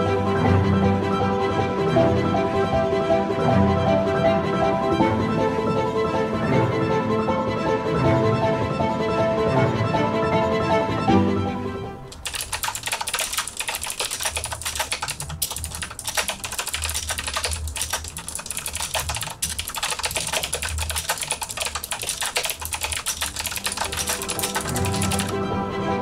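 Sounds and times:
mechanical keyboard typing: 12.1s - 25.4s.

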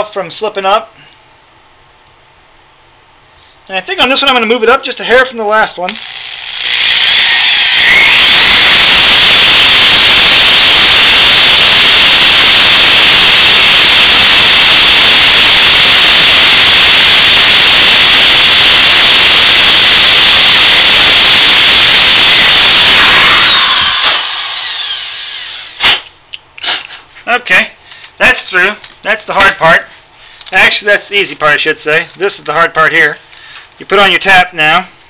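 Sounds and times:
power drill boring metal: 5.9s - 25.8s.

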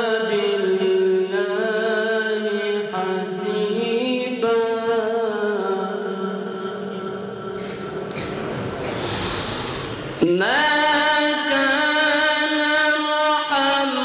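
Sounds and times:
amplified chanting voice: 0.0s - 14.0s
breathy rushing noise: 7.5s - 10.2s.

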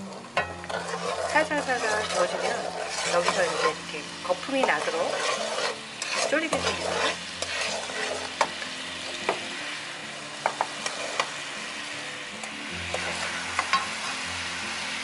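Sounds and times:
wooden spatula scraping a pan: 0.0s - 9.4s, 10.4s - 11.4s, 12.9s - 14.2s
sauce bubbling and sizzling in a pan: 0.0s - 15.0s
spatula tapping a pan: 0.4s - 3.8s, 9.2s - 9.5s, 10.4s - 11.3s, 12.9s - 14.0s.

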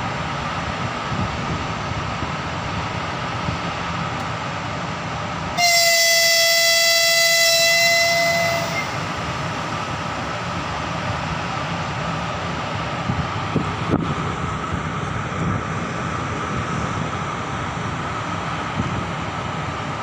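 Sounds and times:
train rumble: 0.0s - 20.0s
locomotive horn blast: 5.6s - 9.2s.

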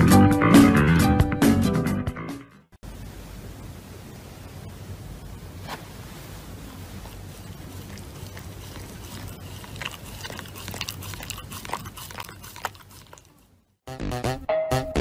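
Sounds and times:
dog chewing paper mask: 7.0s - 13.5s.

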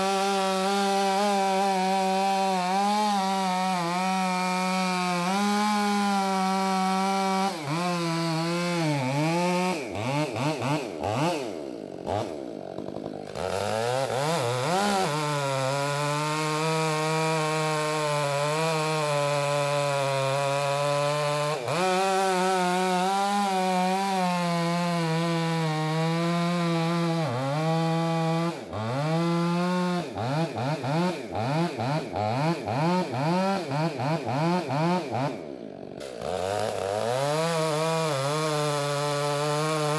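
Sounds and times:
chainsaw cutting logs: 0.0s - 39.9s.

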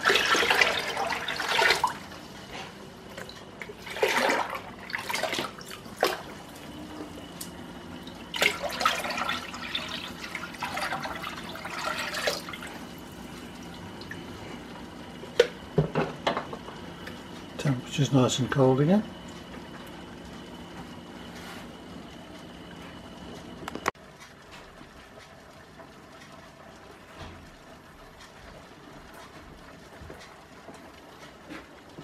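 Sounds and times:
water pouring and splashing: 0.0s - 2.3s, 3.1s - 6.7s, 8.0s - 14.2s.

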